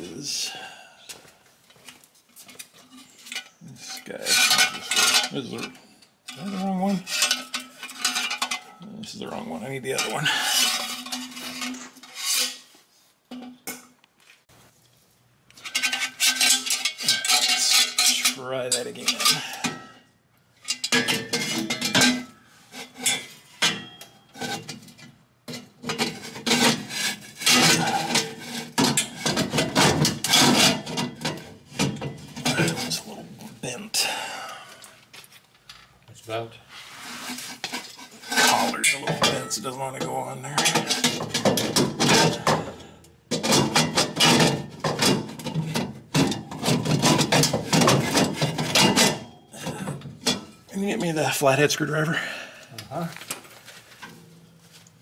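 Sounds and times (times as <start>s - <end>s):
metal pipes clanking and scraping: 1.7s - 14.0s, 15.6s - 34.5s, 35.6s - 54.9s
steel exhaust pipes clanking: 15.6s - 33.2s.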